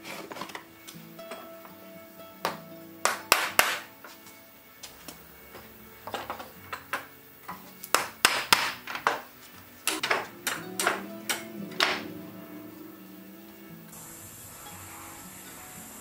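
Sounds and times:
background music: 0.0s - 16.0s
hammer striking wood: 2.5s - 3.9s, 7.9s - 12.1s.

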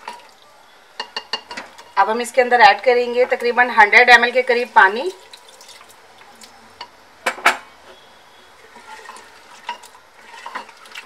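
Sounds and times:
spoon stirring in pot: 0.0s - 0.4s, 1.0s - 2.0s, 8.6s - 11.0s
spoon clinking against pot: 1.0s - 1.8s.

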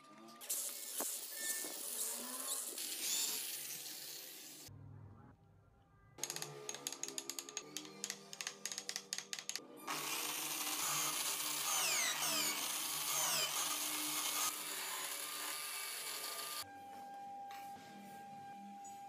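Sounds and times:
electric drill running: 9.5s - 16.6s.

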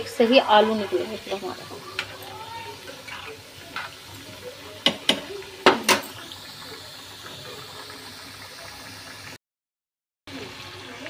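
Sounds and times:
potatoes sizzling in hot oil: 0.0s - 9.4s, 10.3s - 11.0s
spoon knocking metal pan: 4.8s - 6.2s.

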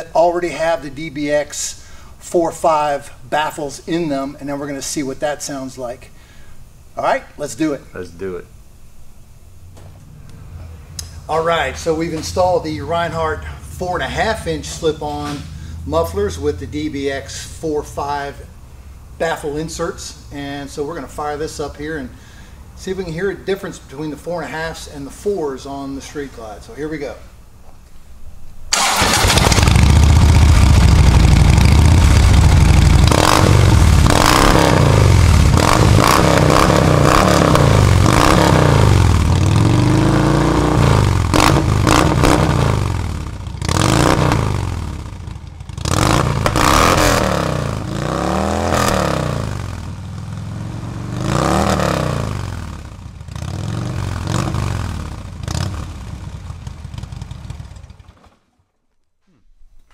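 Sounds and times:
motorcycle engine revving: 28.7s - 58.4s.

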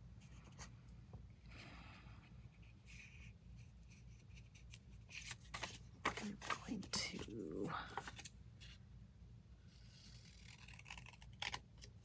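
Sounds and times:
paper rustling: 4.4s - 8.3s.

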